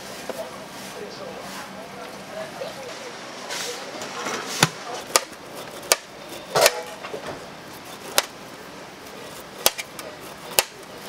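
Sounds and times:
knife striking a cutting board: 4.6 - 7.0, 8.1 - 8.3, 9.6 - 10.8.

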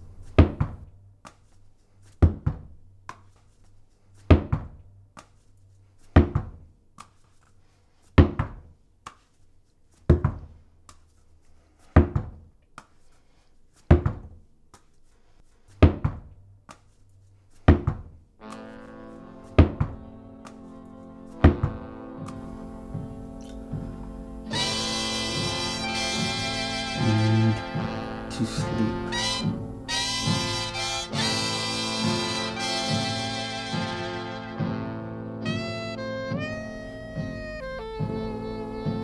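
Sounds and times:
slow heavy double-thump beat: 21.4 - 39.0
low drone: 22.4 - 30.8
sustained chord: 22.4 - 31.2.

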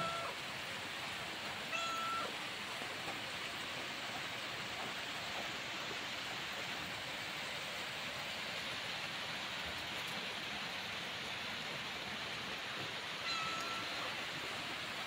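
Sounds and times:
rain falling: 0.0 - 15.0.

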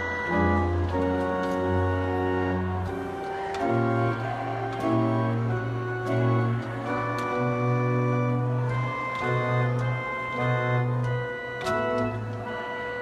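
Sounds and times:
pipe organ playing chords: 0.0 - 13.0.

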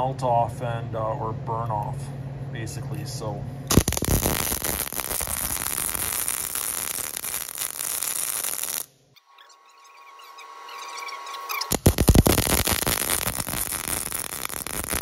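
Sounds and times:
welding arc crackling: 3.7 - 8.9, 10.7 - 15.0.

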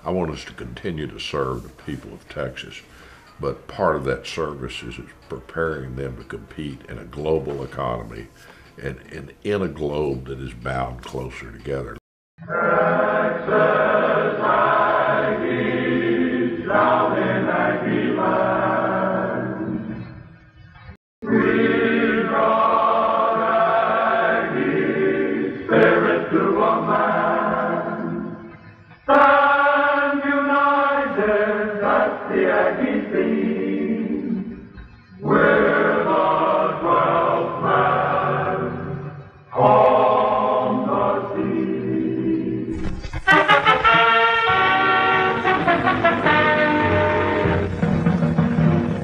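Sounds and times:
choir singing: 10.2 - 20.1, 21.2 - 49.0
brass instruments: 42.8 - 49.0.

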